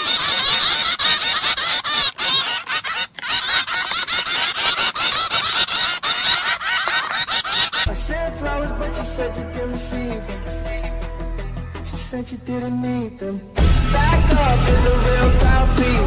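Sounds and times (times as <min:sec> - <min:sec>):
finches chirping: 0:00.0 - 0:07.9.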